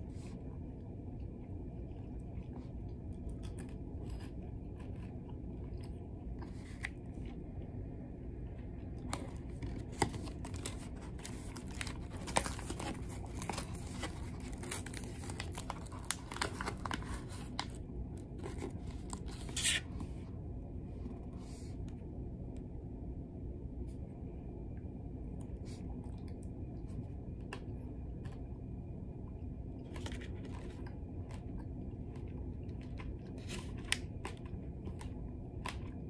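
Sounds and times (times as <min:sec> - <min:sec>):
ferry low hum: 0:00.0 - 0:36.0
plastic packet crinkling: 0:09.2 - 0:19.8
plastic packet ripping: 0:09.7 - 0:17.8, 0:18.4 - 0:19.8.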